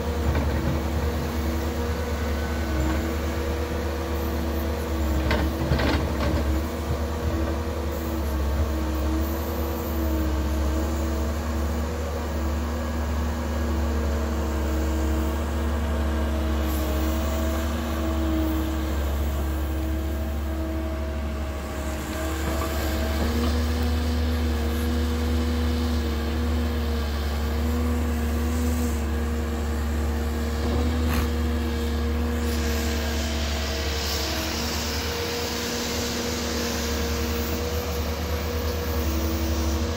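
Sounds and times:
excavator diesel engine running: 0.0s - 39.9s.

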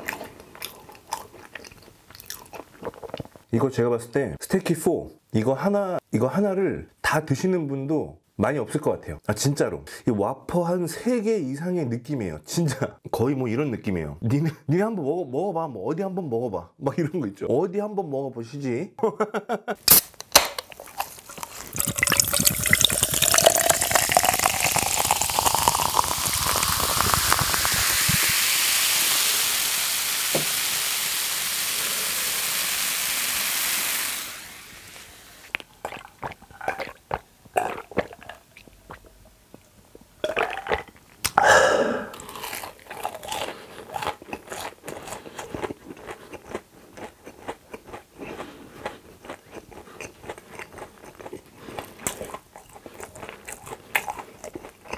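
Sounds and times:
coffee pouring over ice: 21.0s - 29.6s.

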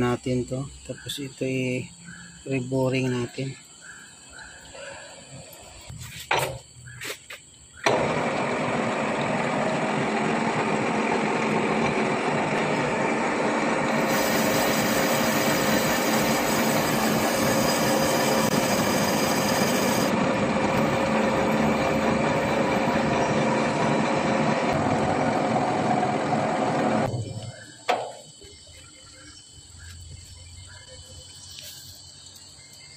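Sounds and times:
metal lathe running: 7.9s - 27.1s.

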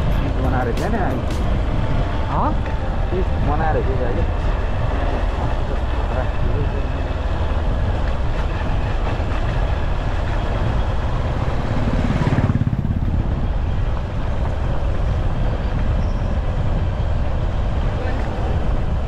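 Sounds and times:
motorcycle engine running: 9.5s - 15.8s.

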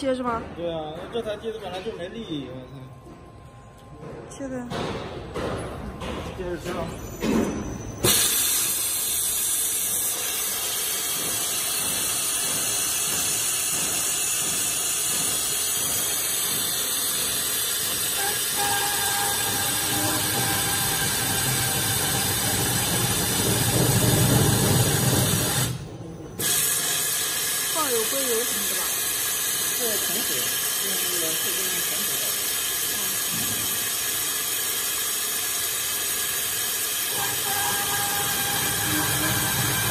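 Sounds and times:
machine motor: 8.0s - 39.9s.

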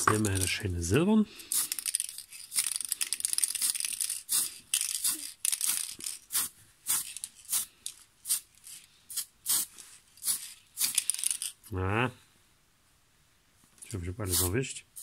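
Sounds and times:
aerosol can spraying: 1.5s - 11.3s, 14.3s - 15.0s.

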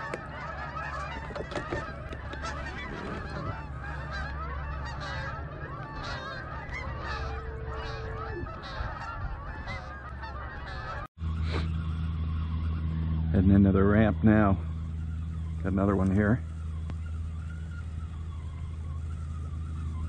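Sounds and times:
geese honking: 0.0s - 20.0s
steady low hum: 0.0s - 20.0s.

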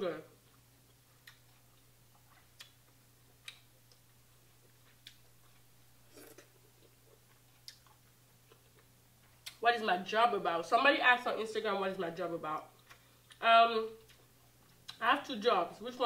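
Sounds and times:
low steady hum: 0.0s - 16.0s
eating clicks and smacks: 0.5s - 4.1s, 4.7s - 5.6s, 6.3s - 9.6s, 14.0s - 15.0s.

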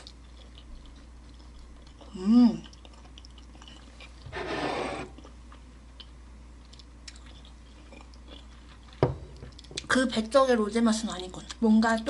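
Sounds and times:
soft chewing with clicks: 0.0s - 4.3s, 5.2s - 10.3s, 11.1s - 12.0s.

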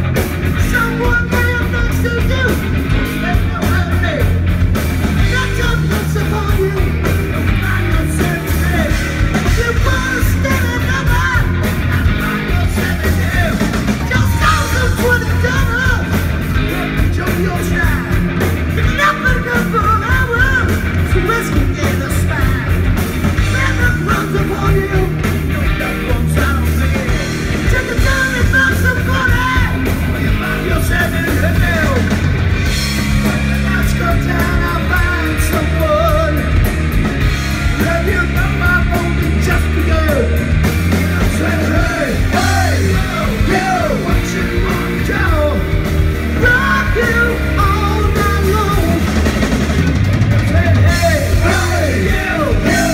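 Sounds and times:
bass guitar: 0.0s - 52.9s
drum kit: 0.0s - 52.9s
electric guitars: 0.0s - 52.9s
person singing: 5.2s - 18.2s, 41.1s - 49.3s, 50.5s - 52.9s.

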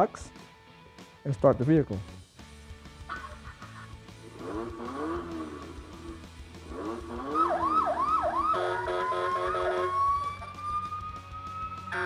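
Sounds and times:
electronic notes: 6.8s - 12.0s
toy siren sweeps: 7.3s - 12.0s.

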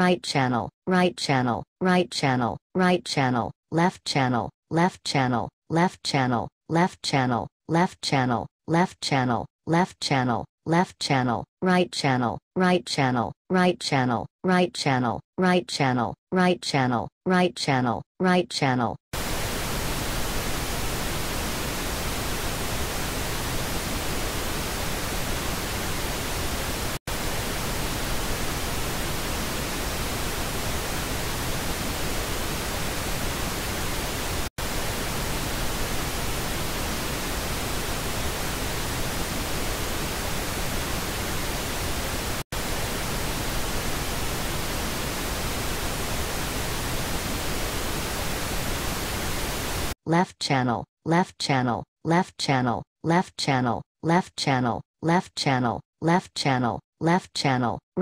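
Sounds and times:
pink noise hiss: 19.2s - 50.0s.

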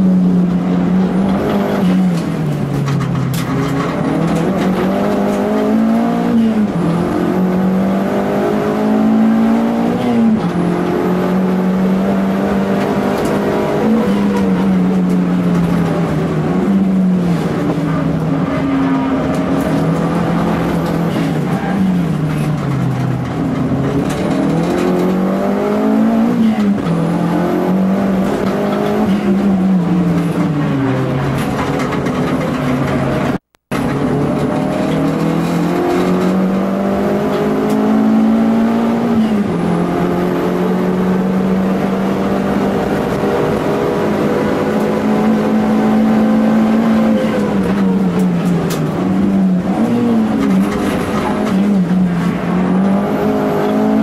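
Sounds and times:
car engine revving from inside cabin: 34.4s - 47.7s, 52.2s - 54.0s.

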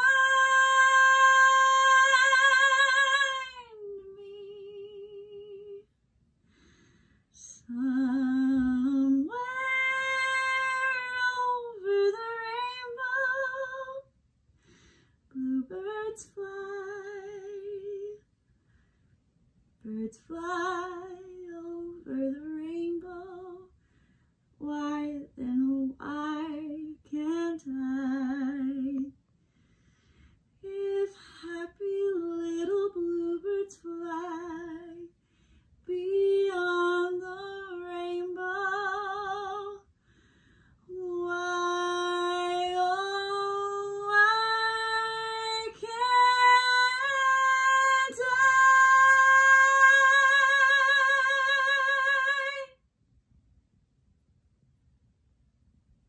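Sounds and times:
woman singing unaccompanied: 0.0s - 5.9s, 7.4s - 14.1s, 15.3s - 18.2s, 19.8s - 23.7s, 24.6s - 29.2s, 30.6s - 35.1s, 35.8s - 39.9s, 40.9s - 52.8s.

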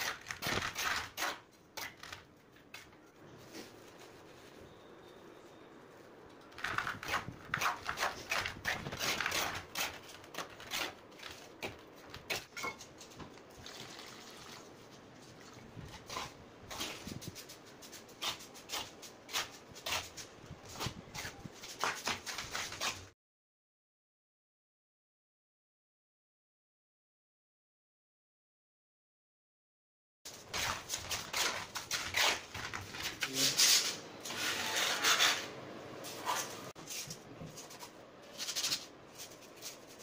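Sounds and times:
dry cement stirred and scraped: 0.0s - 4.8s, 6.0s - 23.1s, 30.3s - 40.0s
wet mix scraping: 30.3s - 40.0s.

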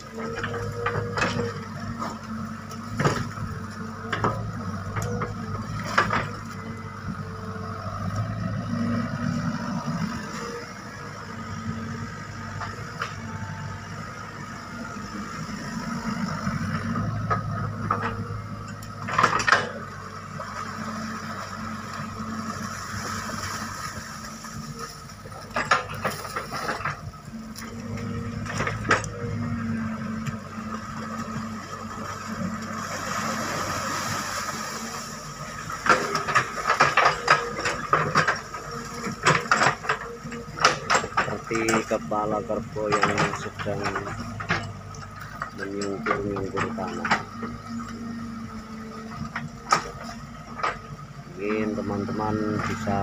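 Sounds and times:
excavator diesel engine running: 0.0s - 53.0s
metallic knocks and clanks: 17.2s - 19.8s, 25.4s - 27.0s, 35.8s - 47.7s.

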